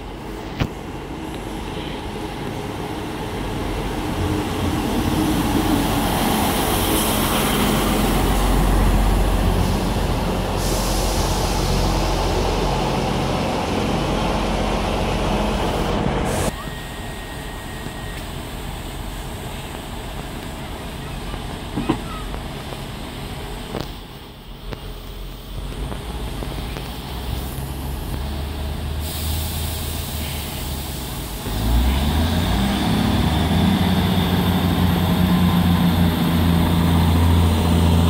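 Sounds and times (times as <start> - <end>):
diesel train idling: 0.0 - 38.0
diesel train running and braking: 0.0 - 38.0
train brakes hissing: 5.3 - 12.9, 15.7 - 22.3, 26.6 - 38.0.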